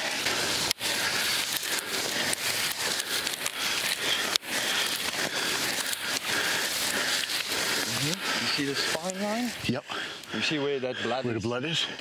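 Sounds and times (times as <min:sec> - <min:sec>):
grass rustling underfoot: 0:00.0 - 0:09.8.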